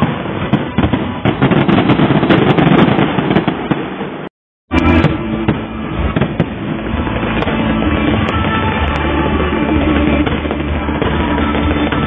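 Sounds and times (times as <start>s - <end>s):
fireworks crackling and banging: 0.0s - 12.0s.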